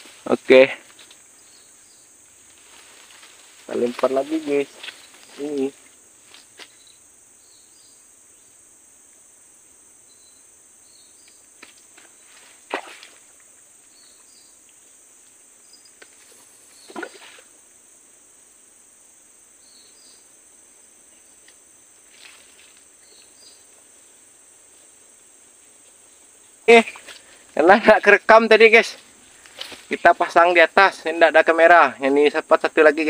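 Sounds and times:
insect chirps: 0:00.0 - 0:33.0
insects droning: 0:00.0 - 0:33.0
rustling: 0:02.3 - 0:06.8, 0:21.3 - 0:28.1, 0:28.8 - 0:30.2.

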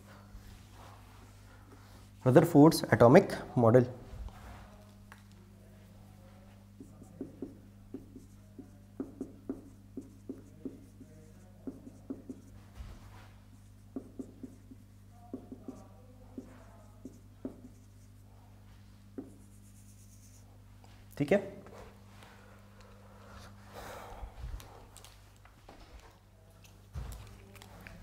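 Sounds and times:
low electrical hum: 0:00.0 - 0:28.0
marker writing on whiteboard: 0:06.5 - 0:18.3, 0:19.0 - 0:20.5.

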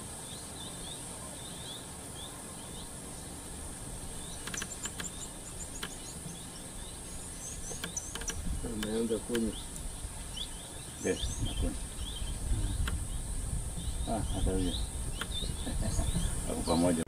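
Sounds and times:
bird chirps: 0:04.0 - 0:17.0.

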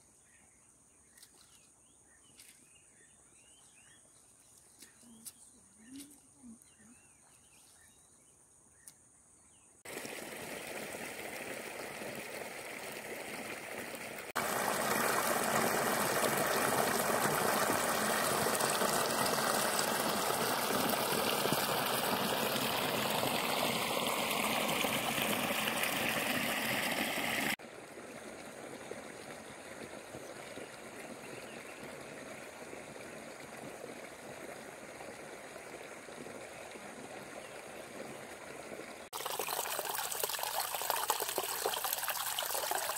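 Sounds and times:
water gushing and bubbling: 0:09.9 - 0:42.9.

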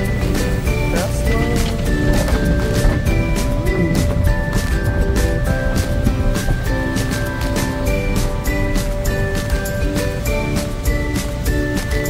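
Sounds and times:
background music with synth notes: 0:00.0 - 0:12.0.

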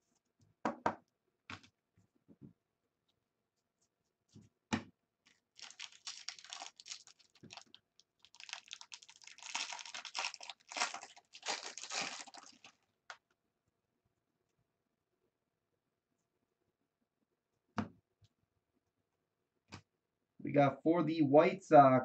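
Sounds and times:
wrapper tearing and crinkling: 0:05.6 - 0:13.2.

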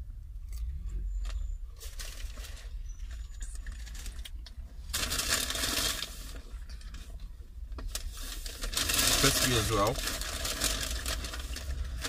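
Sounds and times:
low steady rumble: 0:00.0 - 0:12.0
packaging rustling: 0:04.9 - 0:06.4, 0:07.9 - 0:12.0.

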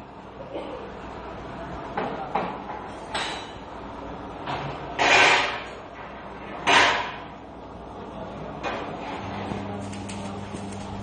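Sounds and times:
clattering knocks and scrapes: 0:04.4 - 0:07.2.

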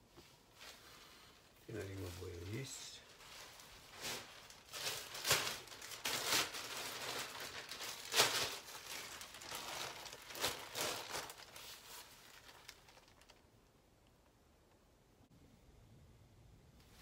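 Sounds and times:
plastic bag crinkling: 0:01.6 - 0:13.8.

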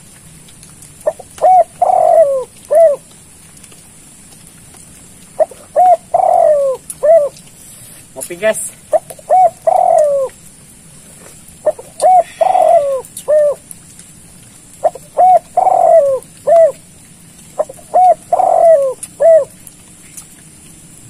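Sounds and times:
dove cooing: 0:01.0 - 0:03.2, 0:05.3 - 0:07.6, 0:08.8 - 0:13.9, 0:14.7 - 0:20.4.

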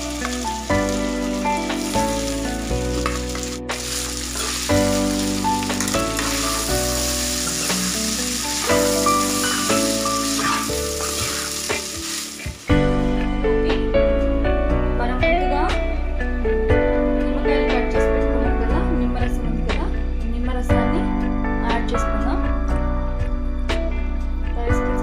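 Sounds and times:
rice sizzling in a pan: 0:00.0 - 0:12.8
instrumental music: 0:00.0 - 0:22.0.

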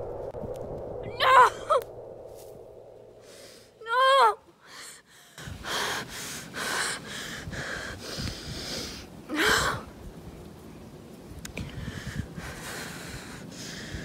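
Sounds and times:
girl gasping and breathing hard: 0:04.6 - 0:09.8.

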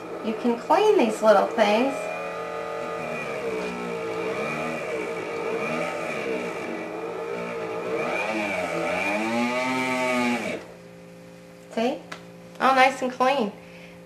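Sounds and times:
rotary tool motor whine: 0:00.0 - 0:10.8.

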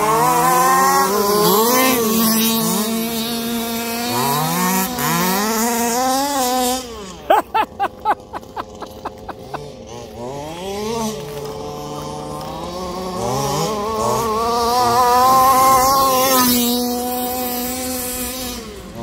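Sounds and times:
small two-stroke engines revving: 0:00.0 - 0:19.0.

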